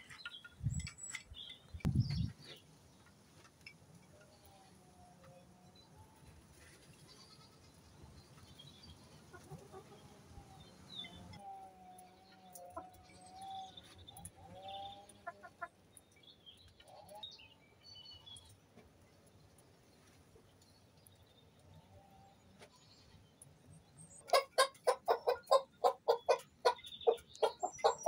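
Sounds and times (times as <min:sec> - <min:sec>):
chicken calls: 0:09.0 - 0:15.8, 0:24.2 - 0:28.0.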